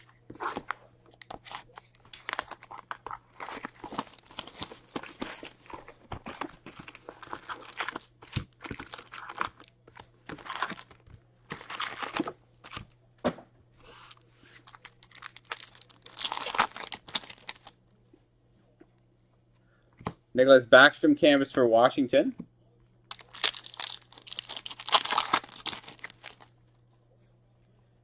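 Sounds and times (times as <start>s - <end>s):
plastic wrap crinkling and tearing: 1.6s - 12.9s, 13.9s - 17.8s, 23.0s - 26.5s.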